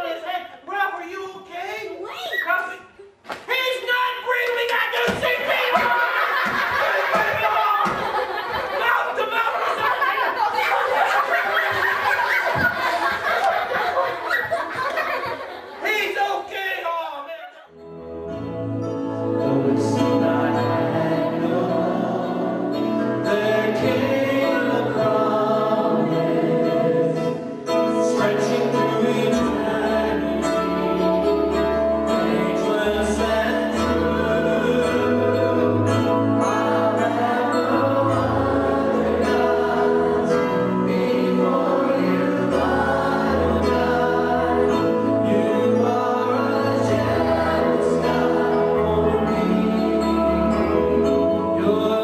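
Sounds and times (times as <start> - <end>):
man and woman singing: 19.3 - 52.0.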